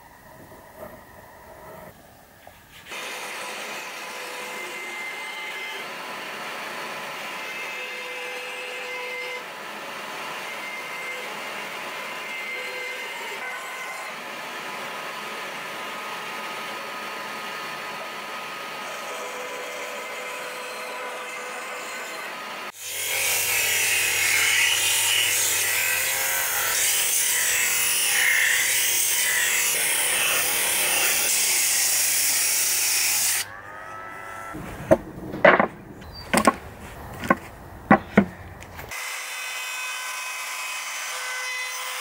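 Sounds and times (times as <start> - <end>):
sharp knocks: 34.6 - 38.4.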